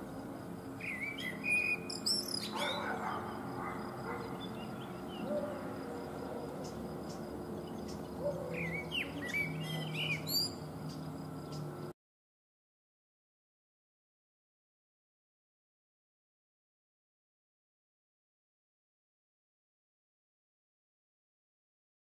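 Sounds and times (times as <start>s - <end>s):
blackbird singing: 0.7s - 11.7s.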